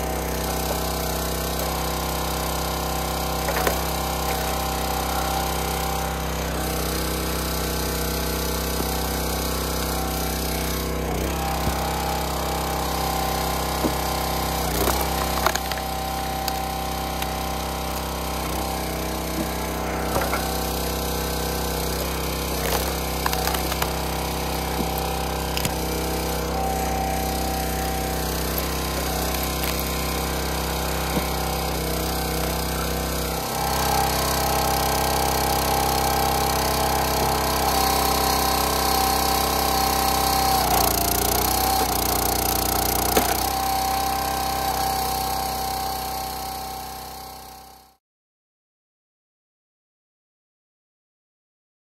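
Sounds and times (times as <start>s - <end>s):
log splitter engine running: 0.0s - 48.0s
wood cracking as logs split: 3.0s - 5.6s, 13.0s - 33.1s, 35.6s - 44.4s.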